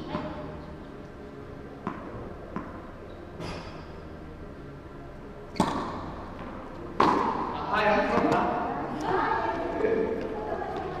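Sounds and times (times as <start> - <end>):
tennis racket striking ball: 1.8 - 2.8, 5.5 - 7.5, 8.1 - 8.6.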